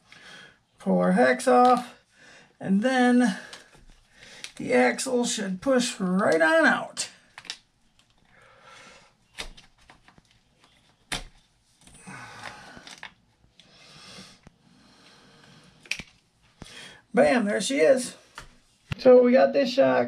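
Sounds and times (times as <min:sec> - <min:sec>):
soft breaths: 0:02.0 - 0:02.6, 0:08.2 - 0:09.3, 0:11.6 - 0:17.2
clicks of metal and plastic parts: 0:07.3 - 0:08.2, 0:15.8 - 0:16.2.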